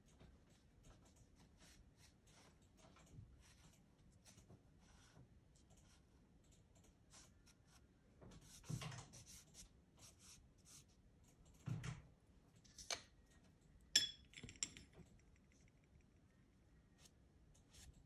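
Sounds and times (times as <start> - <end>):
pastel stick scratching on paper: 1.3 - 2.6, 7.1 - 11.0
pastel stick clinking on plate: 14.0 - 15.0.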